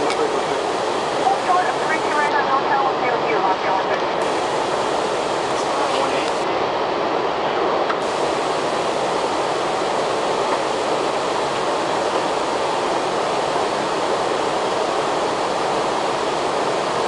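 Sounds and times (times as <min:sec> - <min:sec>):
cockpit air rushing hiss: 0:00.0 - 0:02.3, 0:04.2 - 0:06.4, 0:08.0 - 0:17.0.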